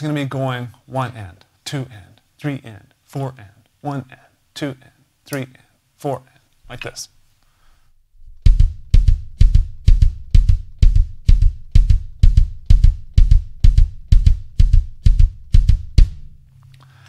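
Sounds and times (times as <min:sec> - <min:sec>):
bass drum strokes with beater click: 0:08.2 - 0:16.4.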